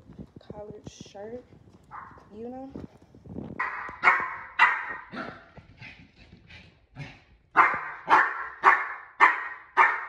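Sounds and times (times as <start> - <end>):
small dog yapping: 3.6 - 5.5.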